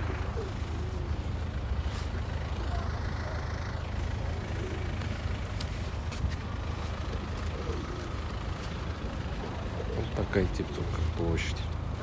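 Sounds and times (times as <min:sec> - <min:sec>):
traffic noise with low rumble: 0:00.0 - 0:12.0.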